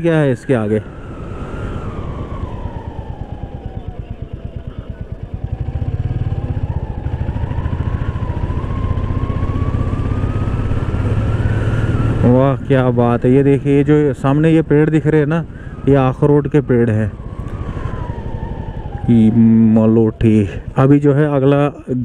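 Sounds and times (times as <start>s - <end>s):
faint whine: 0.0s - 22.0s
motorcycle engine running: 0.9s - 21.4s.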